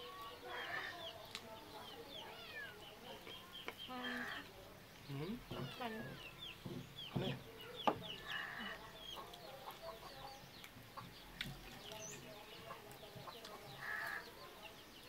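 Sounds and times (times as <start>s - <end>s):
chickens clucking: 0.0s - 15.0s
chewing: 10.6s - 14.2s.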